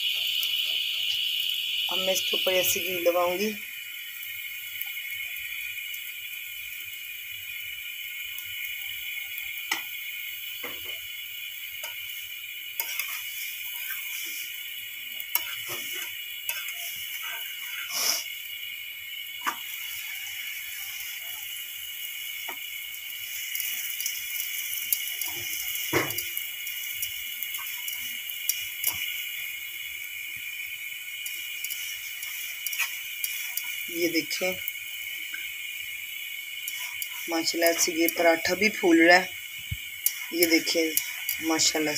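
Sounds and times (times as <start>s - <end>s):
flatbread sizzling on griddle: 0.0s - 41.9s
spatula scraping griddle: 11.8s - 18.3s, 19.4s - 21.4s, 31.6s - 33.7s.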